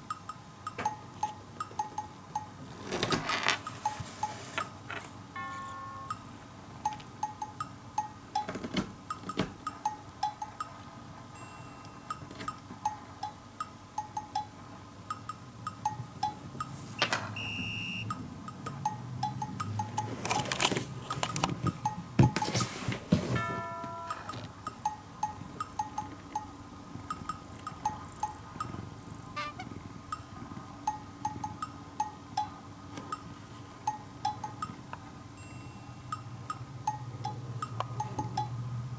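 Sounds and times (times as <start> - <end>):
sustained chime-like tone: 5.4 - 6.4
playful plinking background music: 5.4 - 8.5, 23.4 - 26.5.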